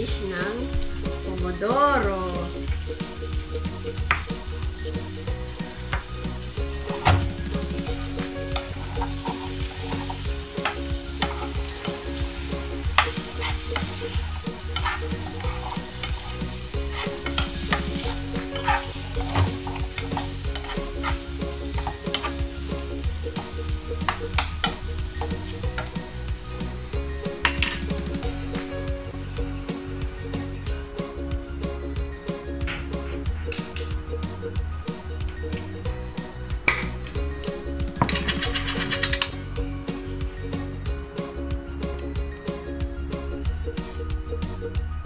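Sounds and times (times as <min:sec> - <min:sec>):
meatballs sizzling in a frying pan: 0:00.0 - 0:41.0
metal spoon scraping a pan: 0:06.4 - 0:22.5, 0:38.0 - 0:39.4.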